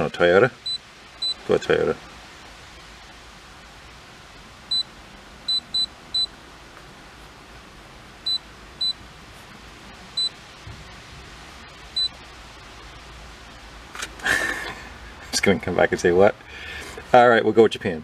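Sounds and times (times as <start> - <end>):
faint steady hiss: 0.0 - 18.0
short high beeps: 0.6 - 1.4.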